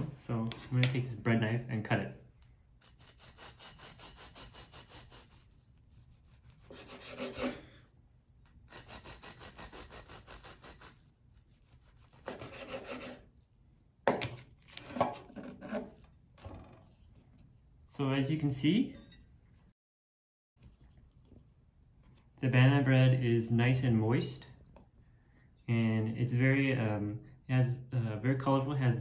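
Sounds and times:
bread knife sawing through loaf: 0:02.8 - 0:07.8, 0:08.6 - 0:13.5.

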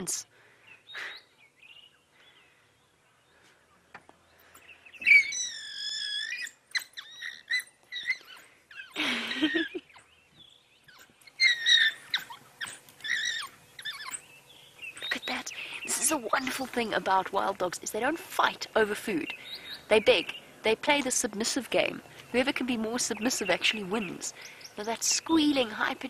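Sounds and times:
rough dog cry: 0:05.0 - 0:09.7, 0:10.9 - 0:14.3
wild dogs squealing: 0:05.0 - 0:10.1, 0:10.8 - 0:15.8.

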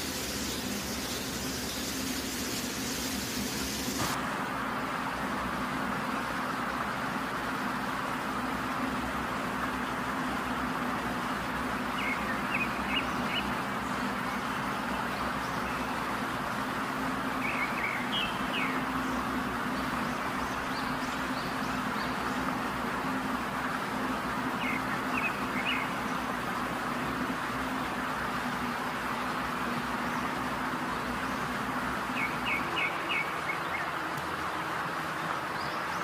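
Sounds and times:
small birds chirping: 0:00.0 - 0:04.2, 0:17.4 - 0:22.8, 0:24.3 - 0:26.6, 0:29.6 - 0:34.4
steady hiss: 0:00.0 - 0:05.1.

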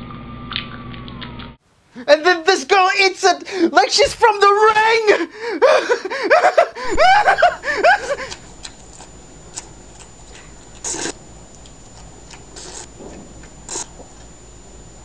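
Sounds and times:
slurping noodles: 0:08.2 - 0:11.2, 0:12.3 - 0:14.1.

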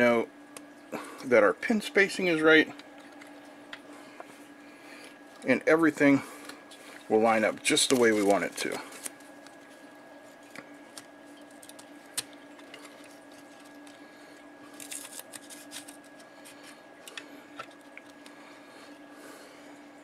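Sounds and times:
steady low hum: 0:00.0 - 0:20.0
tape clicking and rustling: 0:07.5 - 0:09.7, 0:10.5 - 0:14.0, 0:14.7 - 0:18.4.

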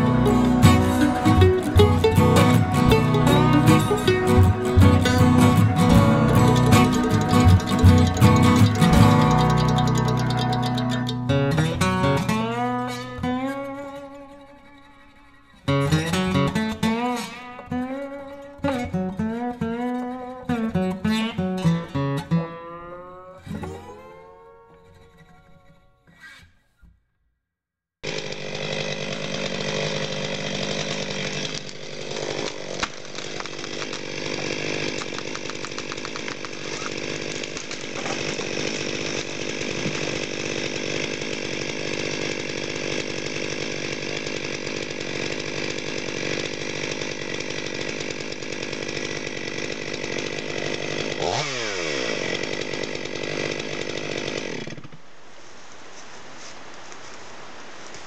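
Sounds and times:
chainsaw cutting wood: 0:00.0 - 0:14.6, 0:15.6 - 0:24.7, 0:28.0 - 0:55.0
steady hiss: 0:55.0 - 0:58.0.

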